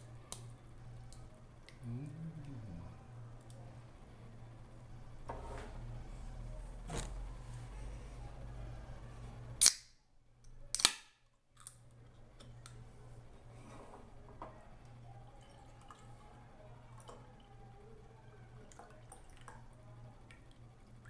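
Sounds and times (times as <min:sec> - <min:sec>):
drink can pull-tab cracking open: 0:09.6 - 0:09.9, 0:10.7 - 0:11.8.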